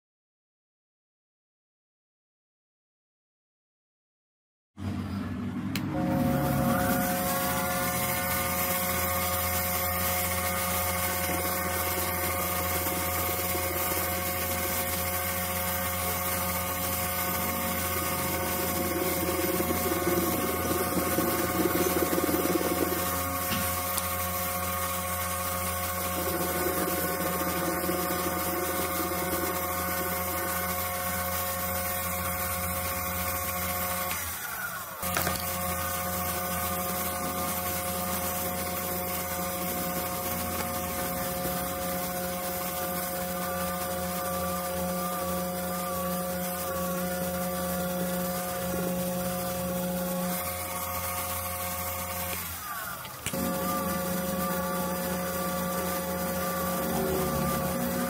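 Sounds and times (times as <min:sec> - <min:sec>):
metal lathe motor whine: 0:05.4 - 0:58.0
rough cutting noise: 0:05.7 - 0:31.1, 0:48.4 - 0:58.0.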